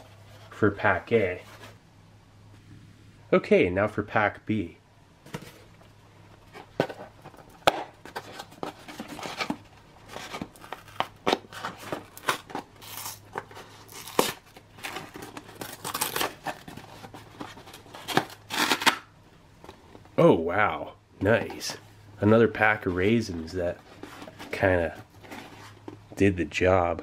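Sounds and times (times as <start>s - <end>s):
cardboard box being torn open: 13.8s - 16.8s.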